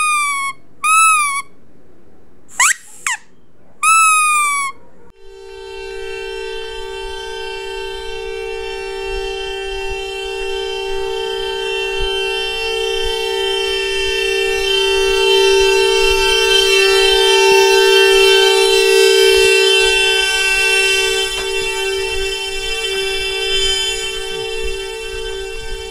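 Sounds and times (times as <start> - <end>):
car horn two-note blare: 5.3 - 25.9.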